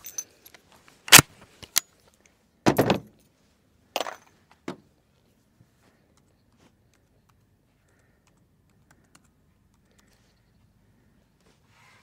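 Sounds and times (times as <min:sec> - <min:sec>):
rifle action metallic rattle: 0:00.0 - 0:01.9.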